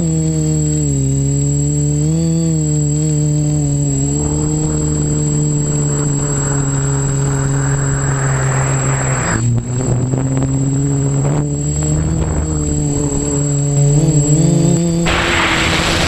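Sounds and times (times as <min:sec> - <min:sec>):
drone motors humming with whine: 0:00.0 - 0:16.0
rushing noise: 0:04.1 - 0:09.7, 0:15.0 - 0:16.0.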